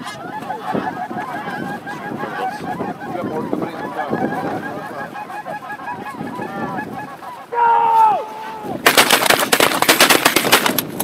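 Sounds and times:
geese honking: 0:00.0 - 0:09.6
rapid shotgun fire: 0:08.8 - 0:10.8.

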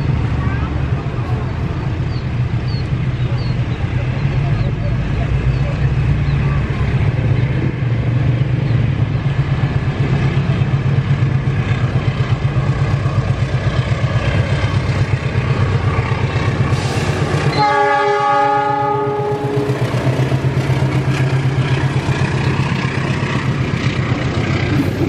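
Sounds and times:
locomotive rumbling: 0:00.0 - 0:25.0
train horn: 0:17.5 - 0:20.0.

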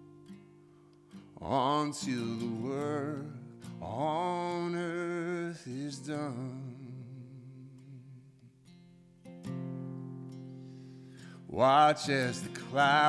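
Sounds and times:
acoustic guitar accompaniment: 0:00.0 - 0:13.0
man singing slow worship song: 0:01.4 - 0:08.5, 0:11.3 - 0:13.0.

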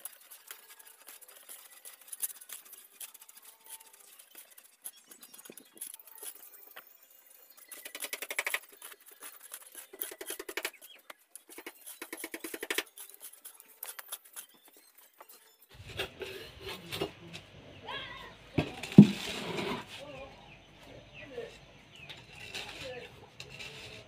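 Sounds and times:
stones clicking: 0:00.0 - 0:15.4
shovel scraping gravel: 0:00.0 - 0:17.1, 0:18.8 - 0:20.1, 0:21.9 - 0:24.0.

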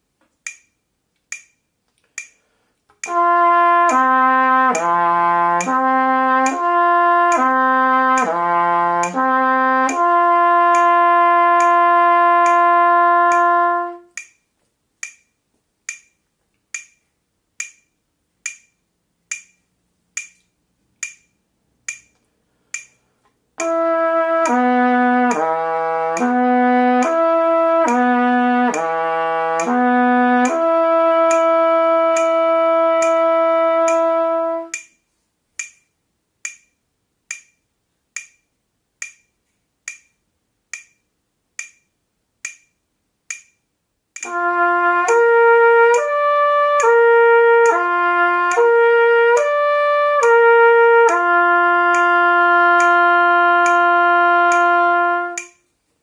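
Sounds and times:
metronome clicking: 0:00.2 - 0:55.7
trumpet playing slurred notes: 0:03.0 - 0:14.2, 0:23.6 - 0:34.8, 0:44.2 - 0:55.5.

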